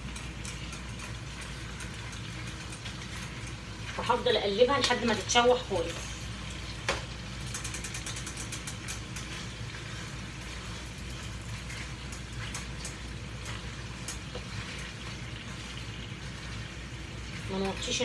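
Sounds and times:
utensil clicking against pot: 0.0s - 3.6s, 6.8s - 9.6s, 11.2s - 14.5s
meat sizzling in butter: 0.0s - 18.0s.

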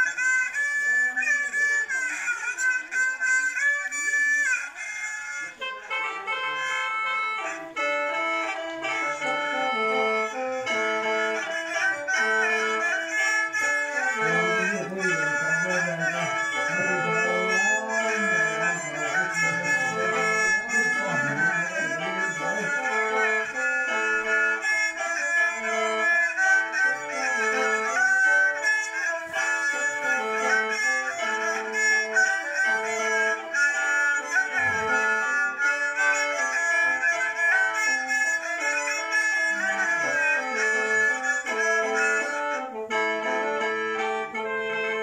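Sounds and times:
bowed fiddle sliding melody: 0.0s - 45.0s
free-reed mouth organ drone chords: 14.1s - 24.0s.

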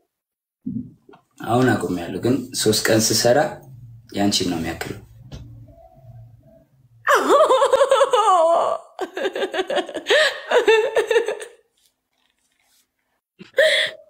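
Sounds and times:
woman laughing hard: 7.1s - 11.6s.

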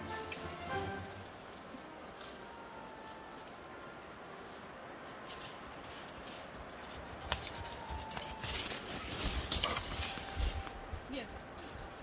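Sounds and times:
footsteps crunching through dry leaves: 0.0s - 12.0s.

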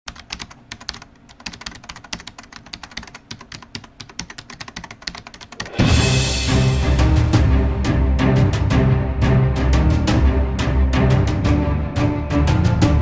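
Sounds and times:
rapid clicking: 0.1s - 5.8s
music: 5.6s - 13.0s.

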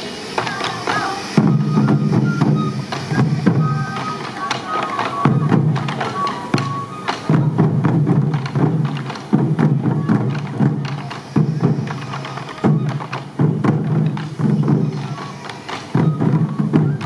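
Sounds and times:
high held melody: 0.0s - 8.3s
taiko drums beating: 0.0s - 17.0s.

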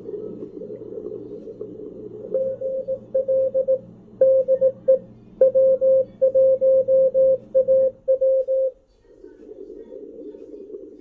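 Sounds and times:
radio band noise and hiss: 0.0s - 11.0s
morse code beep tone: 2.3s - 8.8s.

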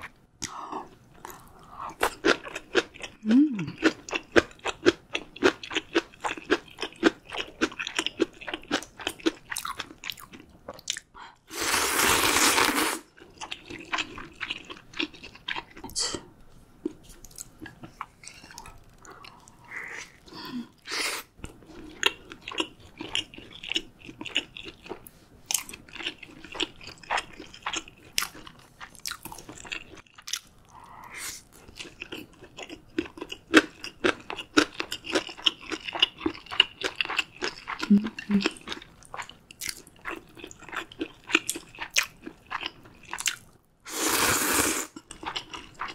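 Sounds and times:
wet chewing and crunching: 1.2s - 11.1s, 13.1s - 15.8s, 21.4s - 30.9s, 31.5s - 43.6s, 44.9s - 45.9s
loud slurp: 43.9s - 45.0s.

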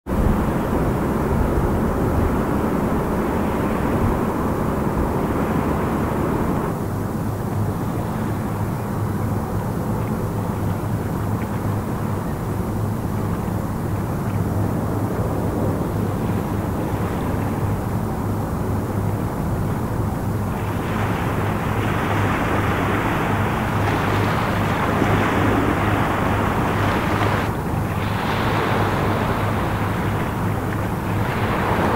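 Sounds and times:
rushing noise: 0.1s - 7.0s
boat engines droning: 0.1s - 31.9s
steady low hum: 0.1s - 31.9s
water rushing from bow wave: 0.1s - 31.9s
wind on microphone: 0.1s - 31.9s.

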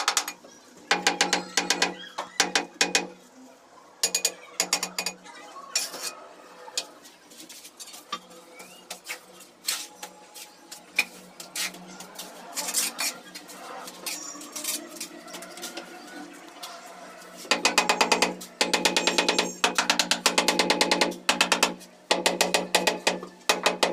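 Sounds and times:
tools tapping on ceramic tiles: 0.0s - 3.1s, 4.0s - 5.2s.

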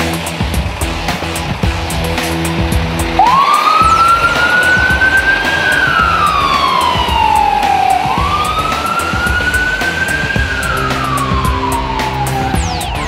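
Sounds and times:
fire engine siren wailing: 3.0s - 13.0s.

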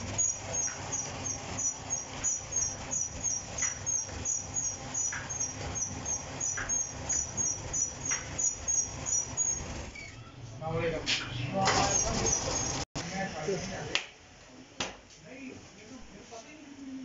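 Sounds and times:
machine squeaking: 0.0s - 12.9s.

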